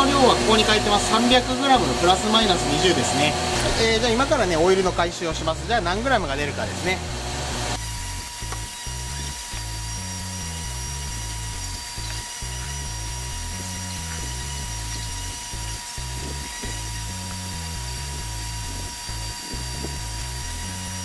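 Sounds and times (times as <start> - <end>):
background music with steady beat: 0.0 - 21.0
machine high whine: 0.0 - 21.0.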